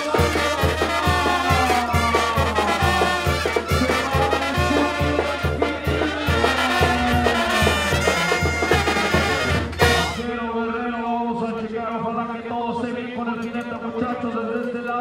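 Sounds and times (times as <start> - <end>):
trumpets and trombones: 0.0 - 10.6.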